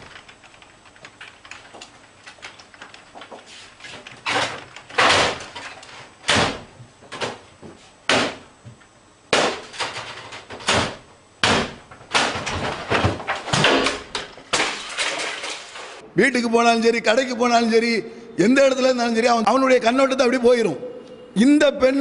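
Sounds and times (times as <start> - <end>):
furniture bangs and crashes: 4.2 - 6.7, 9.3 - 16.0.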